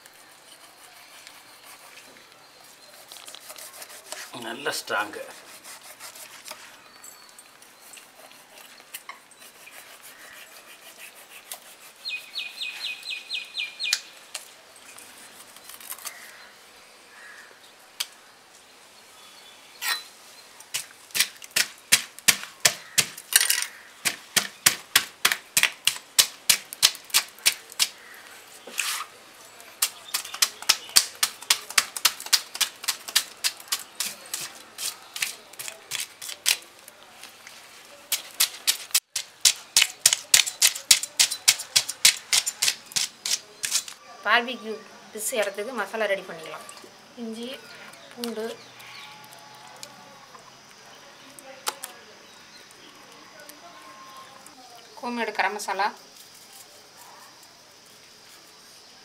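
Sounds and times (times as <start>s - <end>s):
knife scraping fish scales: 0.0s - 2.1s, 2.8s - 6.7s, 7.8s - 12.6s, 22.8s - 29.2s, 29.8s - 36.6s, 38.1s - 44.0s.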